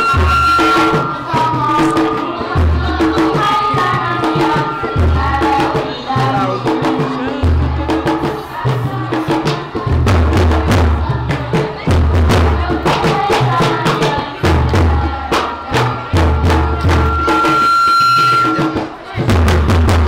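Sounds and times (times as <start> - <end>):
thin steady whistling tone: 0.0 - 2.3, 16.9 - 18.8
sharp percussive strikes: 0.0 - 20.0
women chanting together: 0.8 - 16.9.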